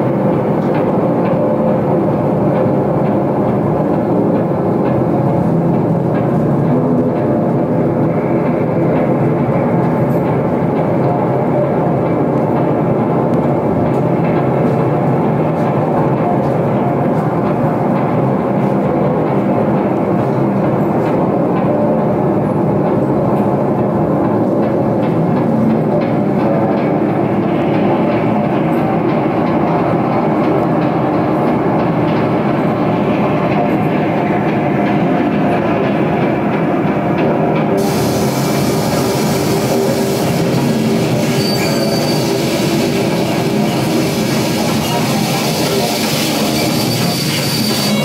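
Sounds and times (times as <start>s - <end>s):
bright hissing layer: 37.8s - 46.8s.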